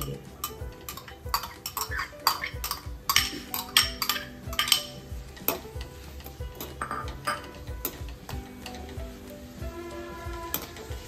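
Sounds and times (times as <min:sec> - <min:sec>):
spoon scraping and clinking glass: 0:00.4 - 0:05.6, 0:06.6 - 0:07.5.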